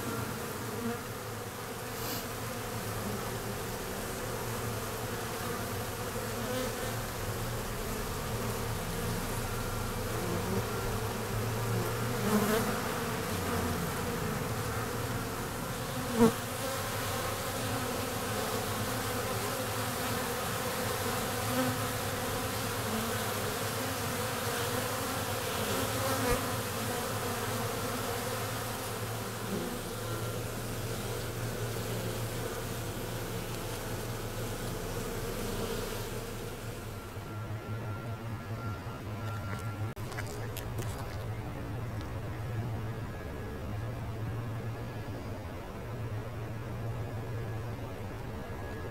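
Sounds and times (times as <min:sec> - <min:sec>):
honeybees buzzing: 0:00.0 - 0:45.7.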